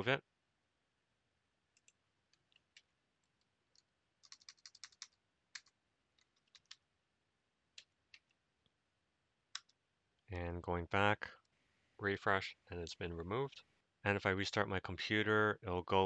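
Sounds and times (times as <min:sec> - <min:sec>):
faint keyboard keystrokes: 0:01.8 - 0:06.8.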